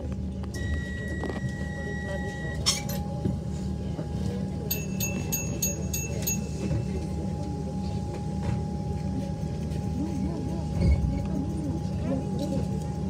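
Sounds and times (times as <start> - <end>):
train carriage low rumble: 0.0 - 13.0
door-closing warning beeps: 0.5 - 3.0.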